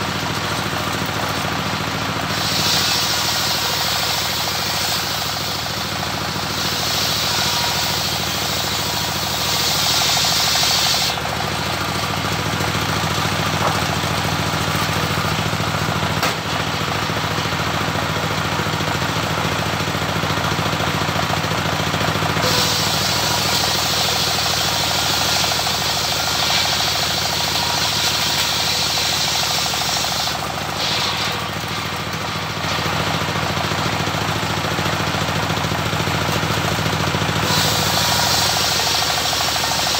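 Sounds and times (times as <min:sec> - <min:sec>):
saw blade cutting wood: 0:02.2 - 0:12.3, 0:22.4 - 0:34.2, 0:37.4 - 0:39.9
diesel engine knocking: 0:11.1 - 0:39.9.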